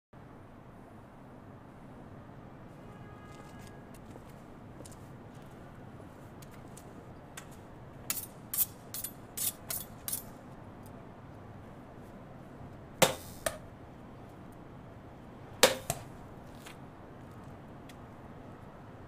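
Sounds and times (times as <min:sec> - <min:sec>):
knives striking paddles: 0:13.0 - 0:13.6, 0:15.6 - 0:16.1.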